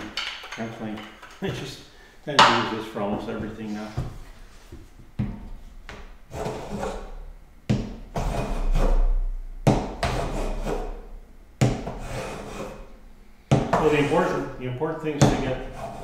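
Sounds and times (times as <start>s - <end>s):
hand plane strokes on wood: 6.3s - 7.2s, 8.1s - 9.2s, 10.0s - 11.0s, 11.8s - 12.9s, 13.7s - 14.4s, 15.2s - 16.0s.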